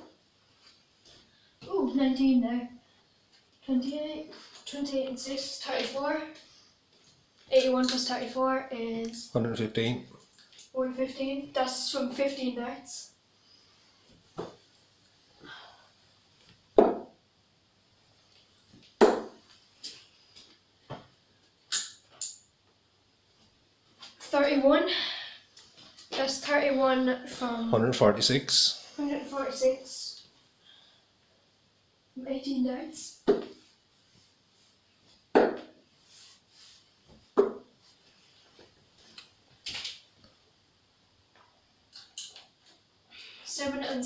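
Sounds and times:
darts hitting dartboard: 0:16.8 - 0:17.2, 0:19.0 - 0:19.4, 0:33.2 - 0:33.6, 0:35.3 - 0:35.8, 0:37.4 - 0:37.7.

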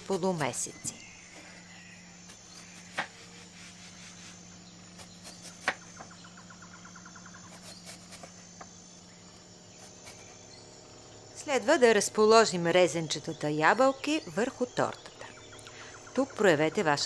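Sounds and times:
knife crackling through apple: 0:00.0 - 0:06.0, 0:07.4 - 0:08.6, 0:09.8 - 0:10.4
steady low hum: 0:00.0 - 0:17.0.

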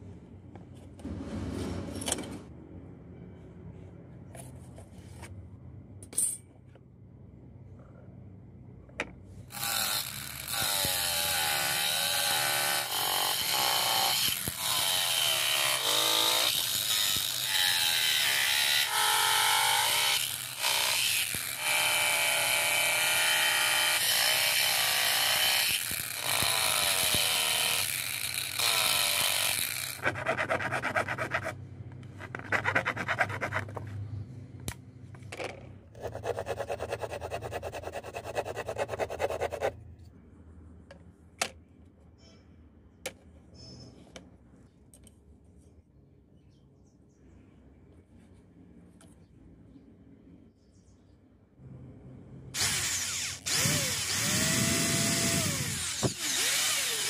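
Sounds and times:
angle grinder cutting plastic: 0:09.5 - 0:31.6, 0:52.6 - 0:57.0.

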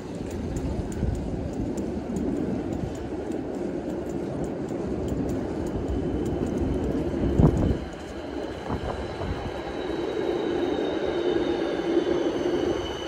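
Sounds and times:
footsteps ticking: 0:00.0 - 0:09.7
city street traffic rumble: 0:00.0 - 0:13.0.

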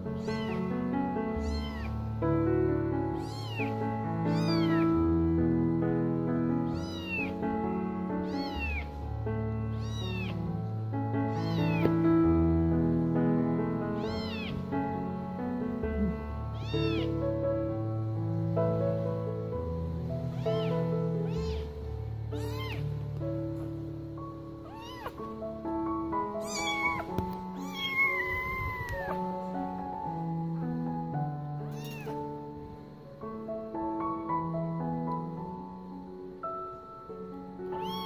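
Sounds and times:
background music sustained notes: 0:00.0 - 0:38.0
kitten meowing in distress: 0:00.2 - 0:00.7, 0:01.4 - 0:01.9, 0:03.2 - 0:03.8, 0:04.4 - 0:04.9, 0:06.7 - 0:07.4, 0:08.2 - 0:08.9, 0:09.8 - 0:10.4, 0:11.3 - 0:11.9, 0:14.0 - 0:14.6, 0:16.0 - 0:17.2, 0:20.3 - 0:21.8, 0:22.4 - 0:22.8, 0:24.6 - 0:25.2, 0:26.4 - 0:29.2, 0:31.7 - 0:32.2, 0:37.8 - 0:38.0.

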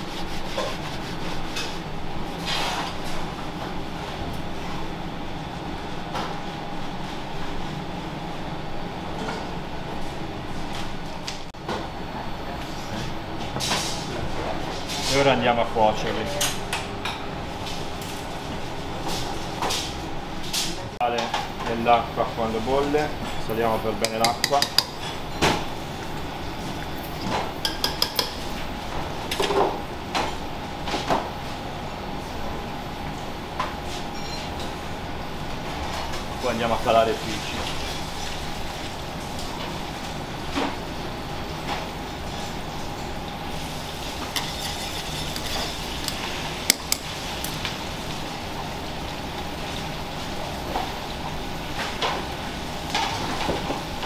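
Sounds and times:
steady background hum: 0:00.0 - 0:54.0.

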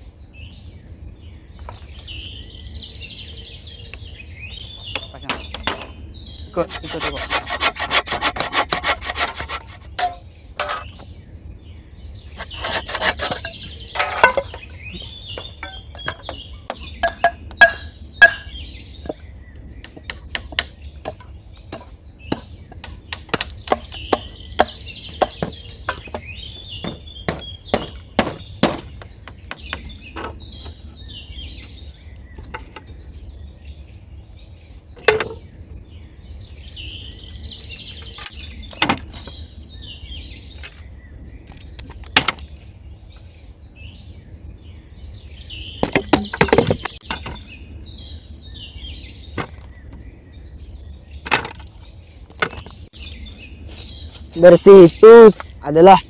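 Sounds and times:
birds chirping: 0:00.0 - 0:56.0
saw cutting wood: 0:06.5 - 0:10.0, 0:12.3 - 0:13.6.

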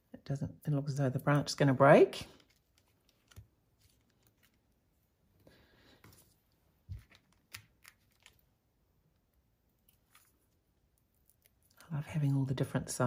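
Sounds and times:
card rustling: 0:02.3 - 0:04.9, 0:06.0 - 0:08.5.

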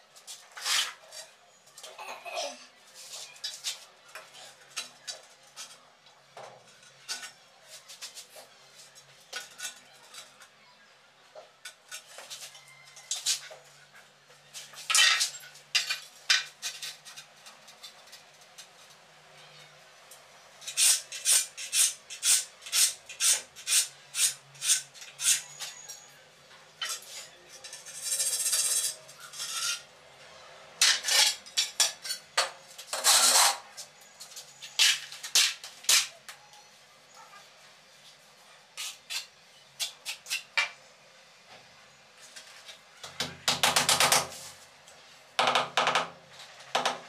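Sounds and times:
trowel scraping on tile: 0:00.5 - 0:01.3, 0:20.6 - 0:26.1, 0:26.8 - 0:29.9, 0:30.8 - 0:36.2, 0:38.8 - 0:40.5.

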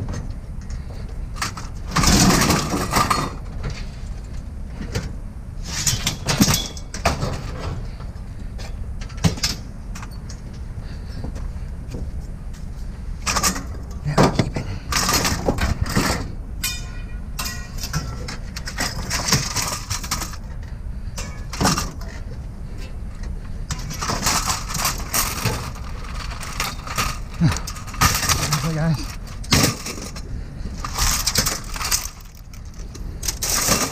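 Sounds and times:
scrap metal clanking: 0:13.2 - 0:23.0, 0:23.7 - 0:33.9.

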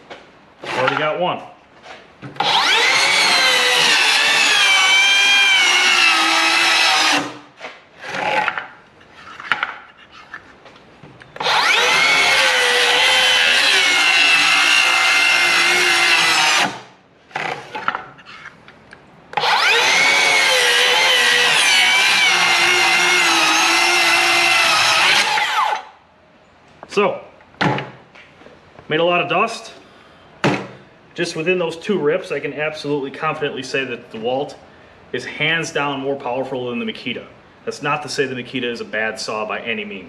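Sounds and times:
circular saw cutting wood: 0:02.4 - 0:07.4, 0:11.4 - 0:17.9, 0:19.4 - 0:25.9.

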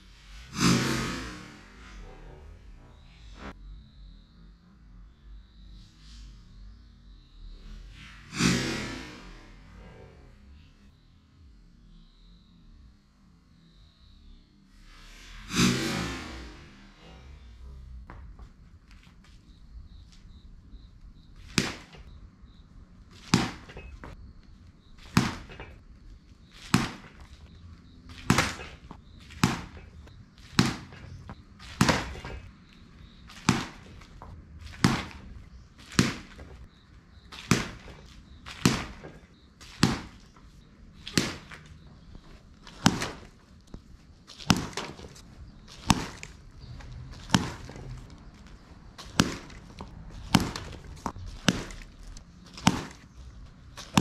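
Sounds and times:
bat striking balls: 0:15.5 - 0:54.0.

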